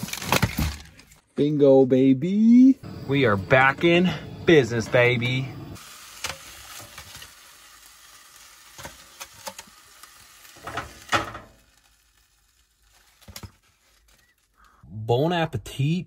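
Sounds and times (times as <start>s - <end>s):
steaks sizzling in a frying pan: 5.8s - 13.5s.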